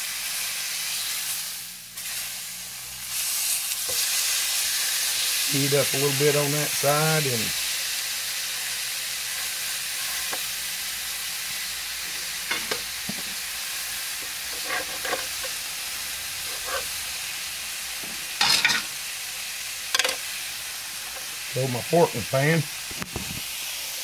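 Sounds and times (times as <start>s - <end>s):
steaks sizzling in skillet: 0.0s - 24.0s
fork scraping pan: 9.3s - 10.5s, 12.1s - 13.4s, 14.2s - 15.6s, 16.4s - 17.0s.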